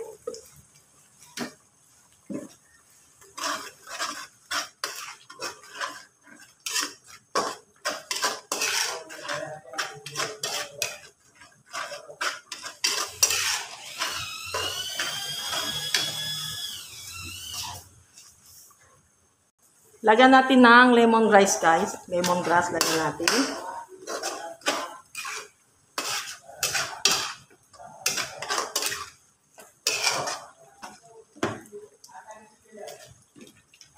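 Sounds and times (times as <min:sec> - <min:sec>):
metal spatula scraping a pan: 0:02.2 - 0:18.3, 0:21.9 - 0:31.7.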